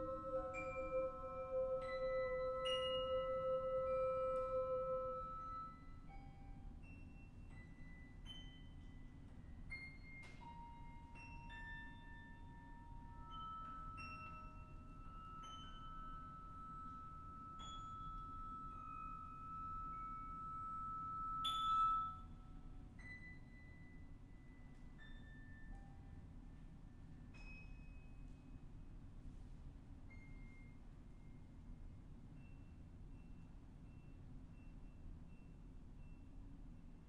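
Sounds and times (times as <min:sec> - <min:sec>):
long held high tone: 0:00.0 - 0:06.3, 0:13.0 - 0:22.4.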